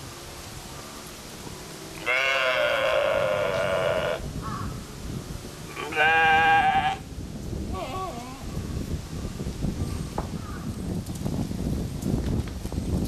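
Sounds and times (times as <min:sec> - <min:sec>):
goat bleating: 0:02.0 - 0:04.2, 0:05.7 - 0:07.0.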